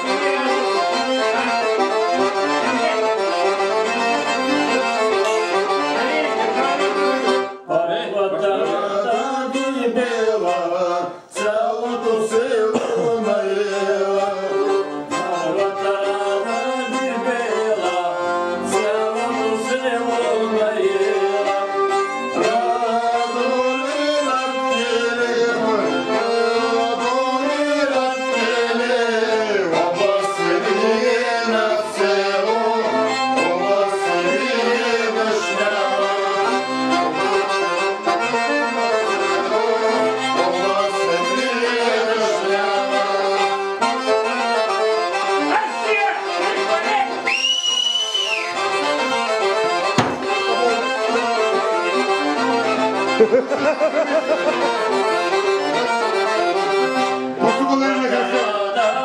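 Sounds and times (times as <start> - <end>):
bowed folk fiddle: 0.0 - 59.0
piano accordion: 0.0 - 59.0.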